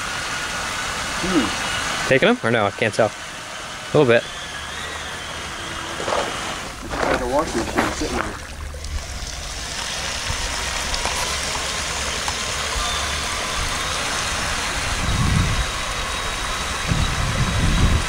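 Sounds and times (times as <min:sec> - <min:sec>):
low rumbles: 0:05.1 - 0:18.0
water splashing: 0:05.9 - 0:15.1.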